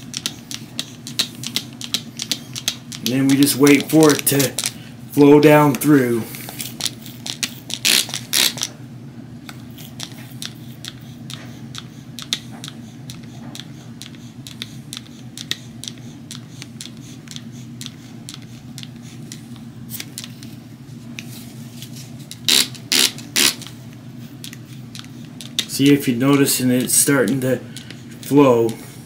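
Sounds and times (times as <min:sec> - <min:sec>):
low steady hum: 0:00.0 - 0:29.0
spray bursts: 0:22.5 - 0:23.7.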